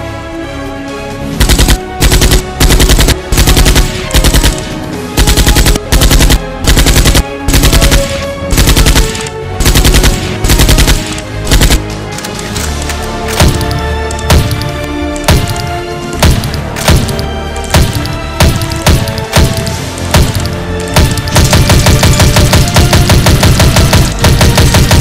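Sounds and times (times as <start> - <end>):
background music: 0.0 - 25.0
automatic gunfire bursts: 1.4 - 11.8, 13.4 - 14.7, 15.3 - 25.0.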